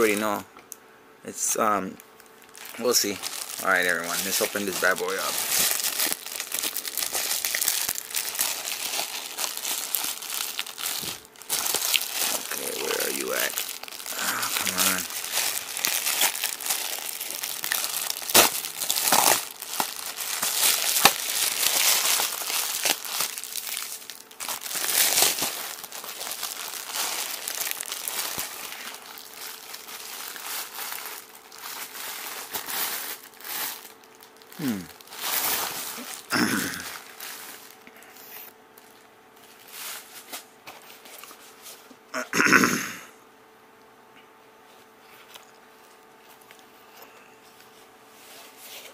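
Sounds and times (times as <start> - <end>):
plastic mailer crinkling: 2.1 - 37.8.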